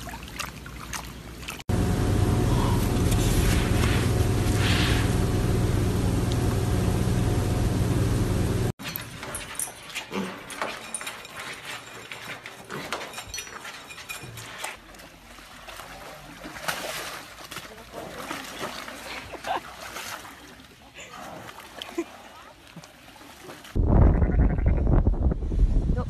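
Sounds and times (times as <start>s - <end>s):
loud steady hum: 1.7s - 8.7s.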